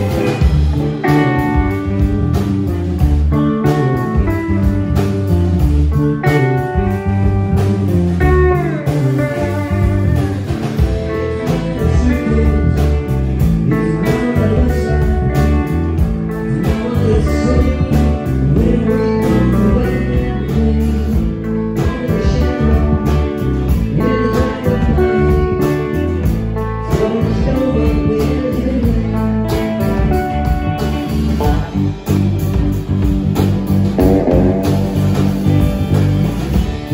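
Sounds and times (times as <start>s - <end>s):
man singing: 0.0s - 2.2s, 6.2s - 32.2s
drum kit: 0.0s - 36.9s
electric guitars: 0.0s - 36.9s.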